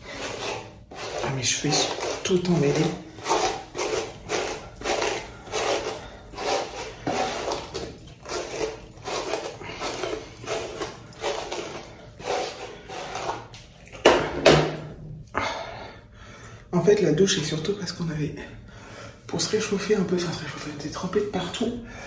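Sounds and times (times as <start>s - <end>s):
hairbrush swishing through wet hair: 0.0s - 13.5s.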